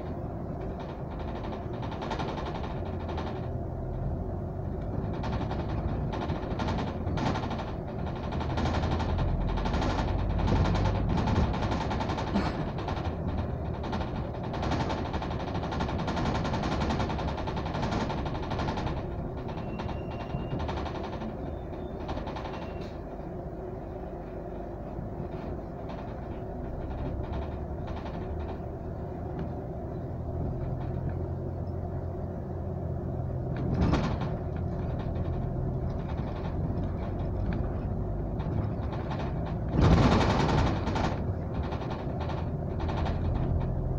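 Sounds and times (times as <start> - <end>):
bodywork rattling and knocking: 0.0 - 23.3, 24.2 - 43.9
bus engine and road rumble: 0.0 - 43.9.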